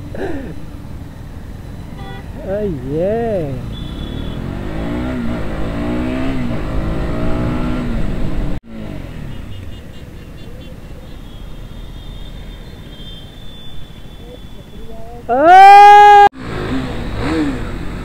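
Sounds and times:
motorcycle engine accelerating: 3.4s - 9.3s, 15.9s - 18.0s.

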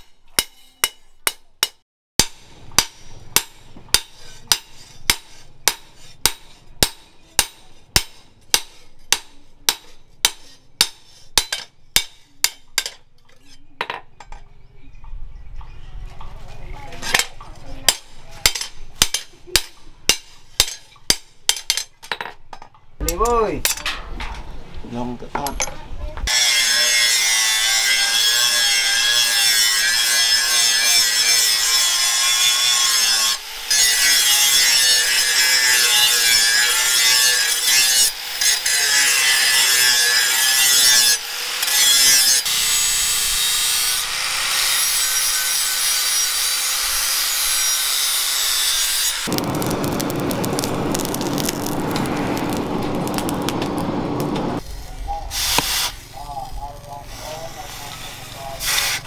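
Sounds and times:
angle grinder grinding steel: 26.3s - 53.8s.

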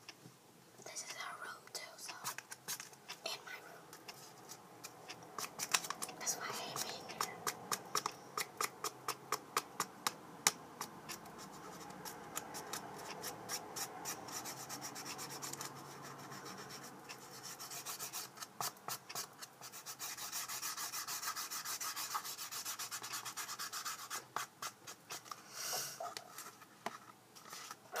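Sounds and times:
fingers rubbing cardboard tube: 10.8s - 25.4s.

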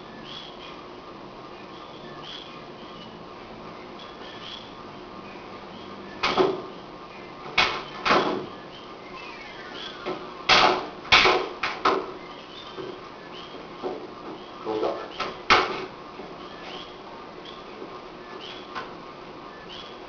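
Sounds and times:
steady low background noise: 0.0s - 20.0s
sharp slaps and thuds: 6.2s - 6.7s, 7.6s - 8.5s, 10.0s - 12.2s, 15.2s - 15.9s.

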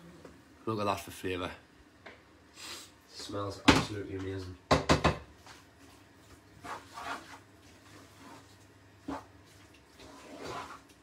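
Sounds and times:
knock: 4.7s - 5.2s
spoon stirring in frying pan: 5.4s - 11.0s.

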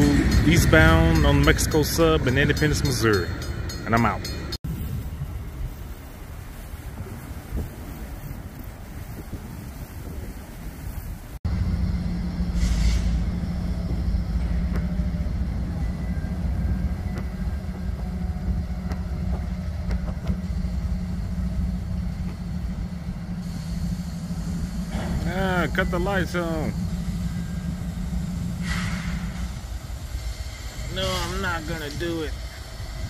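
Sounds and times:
diesel locomotive idling: 0.0s - 4.6s, 11.2s - 33.0s
wind on microphone: 4.6s - 11.4s
air hiss: 12.5s - 13.3s, 23.4s - 25.6s, 27.1s - 33.0s.

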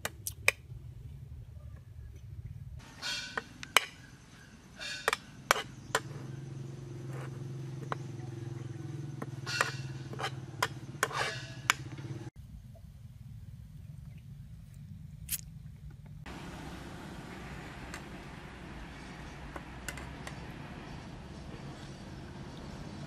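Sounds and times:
metal spoon scraping metal pan: 2.9s - 3.5s, 4.7s - 5.9s, 9.4s - 11.8s.

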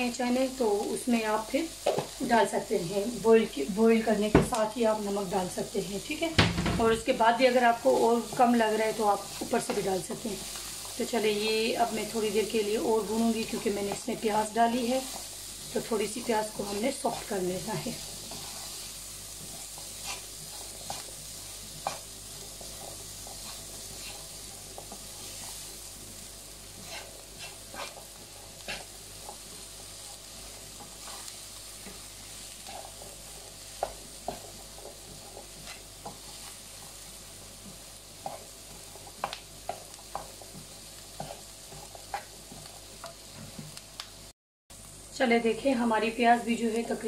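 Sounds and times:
onion sizzling in a pan: 0.0s - 47.0s
utensil scraping a pan: 13.3s - 25.6s, 26.6s - 37.0s, 38.2s - 43.6s.

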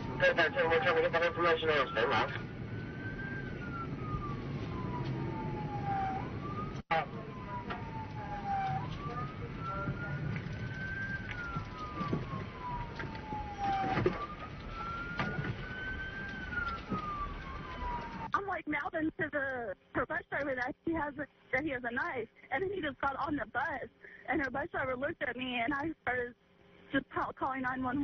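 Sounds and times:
low rumble of cars: 0.0s - 18.3s
police siren wailing: 0.0s - 18.4s.

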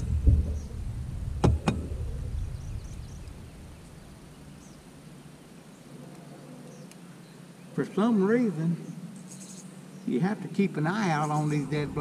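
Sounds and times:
sharp knocks: 1.4s - 1.9s.

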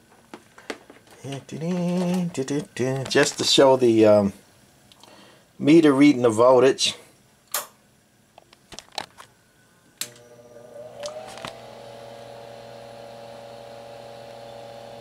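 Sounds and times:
sharp switch click: 7.5s - 7.8s
power-supply hum: 9.5s - 15.0s.

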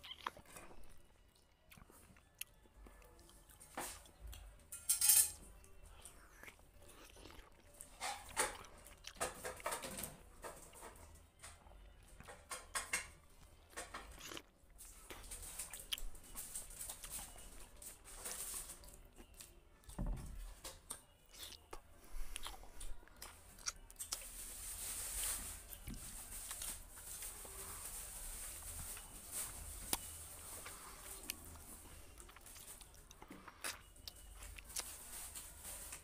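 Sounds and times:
person chewing and lip-smacking: 0.0s - 3.6s, 6.0s - 7.8s, 14.1s - 14.5s, 20.9s - 24.2s, 32.1s - 34.8s.

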